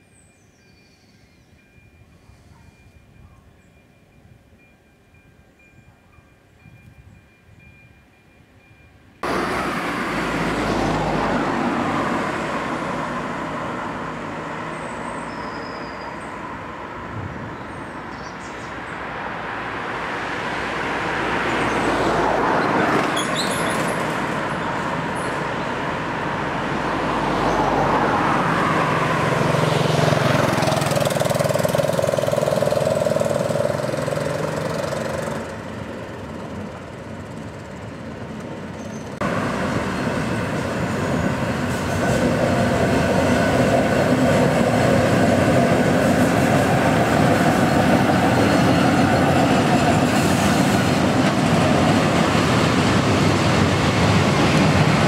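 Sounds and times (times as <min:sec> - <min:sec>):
cars driving past: 0:09.2 - 0:55.0
motorcycle engine: 0:29.6 - 0:35.5.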